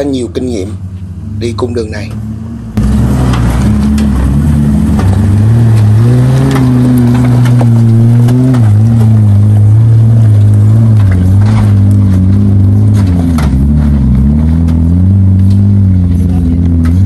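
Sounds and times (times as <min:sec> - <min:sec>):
engine working under load: 0:00.0 - 0:17.0
rocks crunching under tyres: 0:02.8 - 0:16.0.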